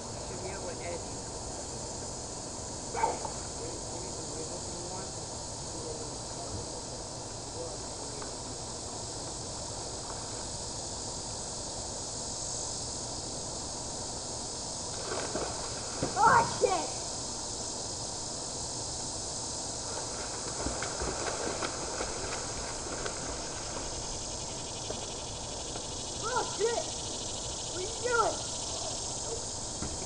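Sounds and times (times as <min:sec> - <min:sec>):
insect buzzing: 0:00.0 - 0:30.0
distant voices: 0:19.8 - 0:30.0.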